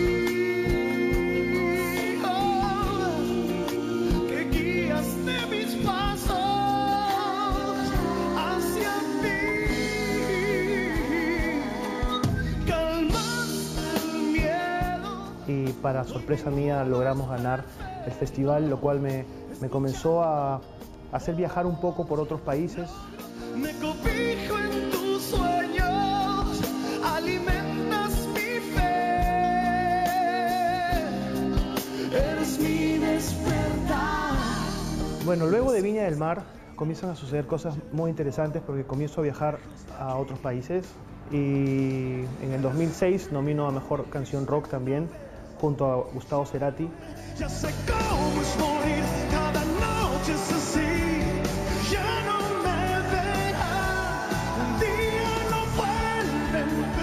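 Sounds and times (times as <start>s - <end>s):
band accompaniment with drum beat: 0.0s - 15.9s, 23.2s - 35.8s, 47.4s - 57.0s
man singing with vibrato: 0.0s - 19.8s, 21.1s - 35.8s, 46.9s - 57.0s.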